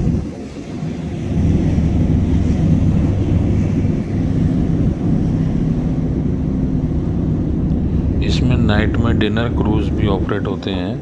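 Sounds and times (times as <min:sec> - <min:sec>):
boat engine droning: 0:00.0 - 0:11.0
wind buffeting microphone: 0:00.0 - 0:11.0.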